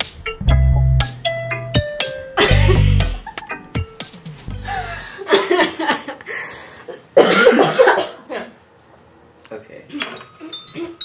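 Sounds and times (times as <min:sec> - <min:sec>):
people coughing: 0:02.4 - 0:03.2, 0:06.9 - 0:08.6
people laughing: 0:04.6 - 0:06.4.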